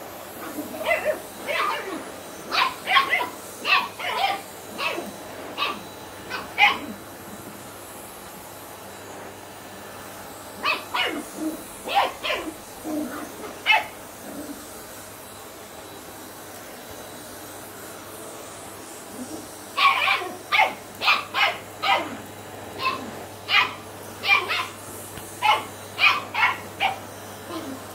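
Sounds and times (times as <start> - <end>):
puppy barking: 0.4 - 7.0, 10.6 - 14.0, 19.8 - 22.2, 22.8 - 24.8, 25.4 - 27.8.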